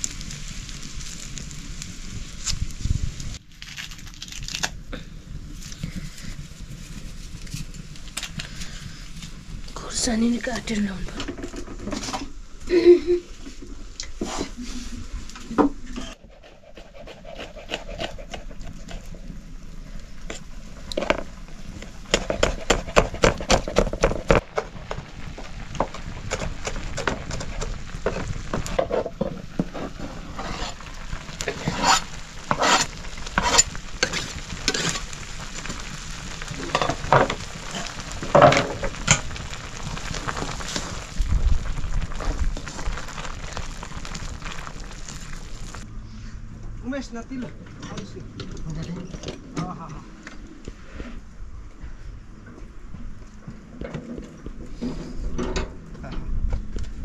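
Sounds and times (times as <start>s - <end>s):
food sizzling in a pan: 0.0s - 3.4s, 24.4s - 45.8s.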